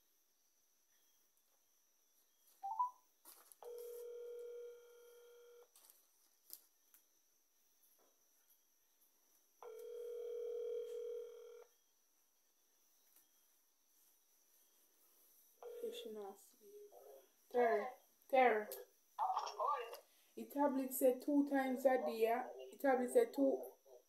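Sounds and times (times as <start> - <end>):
phone ringback tone: 2.6 - 3.0, 3.6 - 5.6, 9.6 - 11.7, 15.6 - 16.1.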